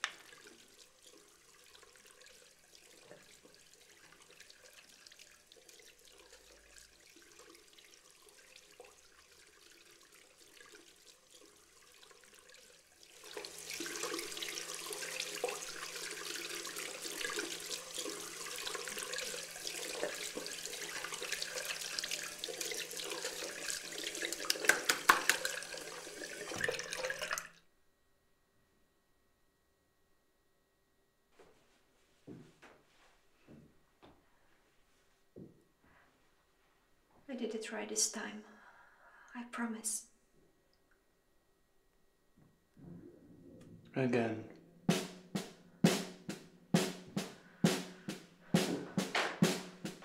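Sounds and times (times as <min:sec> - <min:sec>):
water running into sink: 0:00.0 - 0:27.6, 0:45.0 - 0:50.0
sharp splashes or knocks: 0:24.4 - 0:25.7, 0:44.9 - 0:50.0.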